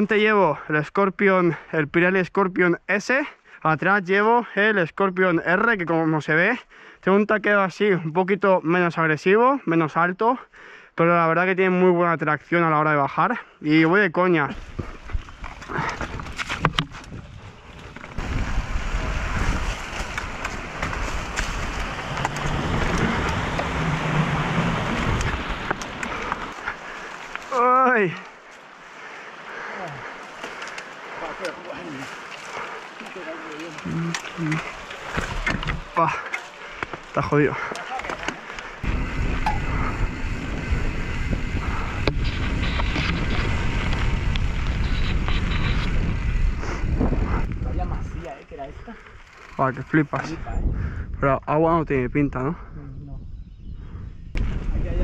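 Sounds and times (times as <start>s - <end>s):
wind noise on microphone: 14.5s - 26.6s, 38.8s - 55.0s
bike tyres rumbling on dirt: 14.5s - 51.0s, 54.3s - 55.0s
bike clicks: 19.2s - 23.9s, 24.8s - 27.5s, 29.7s - 47.6s, 48.6s - 50.4s.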